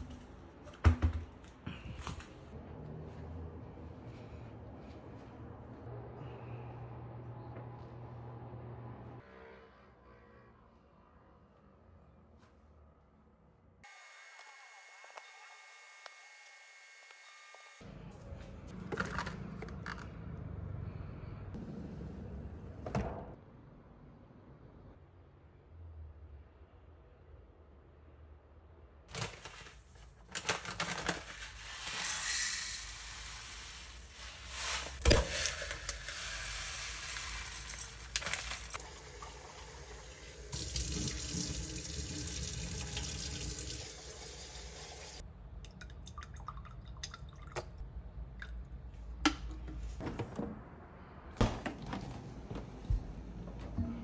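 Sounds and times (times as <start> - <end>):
tap water running into sink: 38.8 - 45.2.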